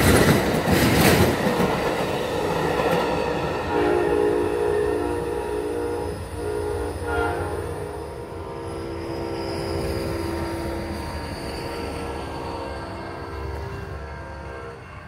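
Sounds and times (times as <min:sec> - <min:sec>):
train rumble: 0:00.0 - 0:15.0
train horn blasts: 0:03.6 - 0:15.0.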